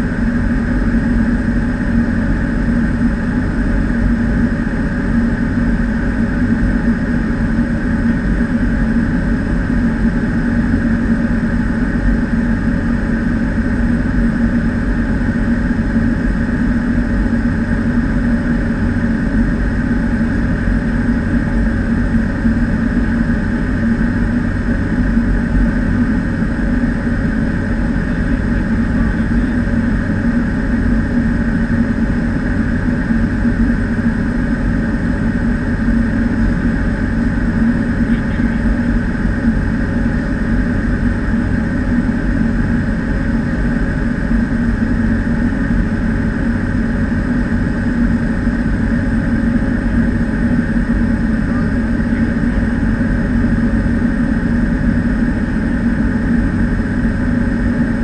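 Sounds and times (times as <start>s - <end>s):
turboprop engine droning: 0.0s - 58.0s.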